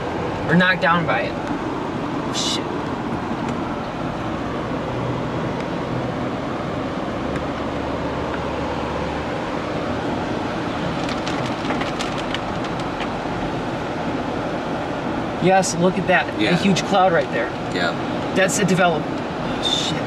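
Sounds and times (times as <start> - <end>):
tyre noise on wet road: 2.8 - 15.3.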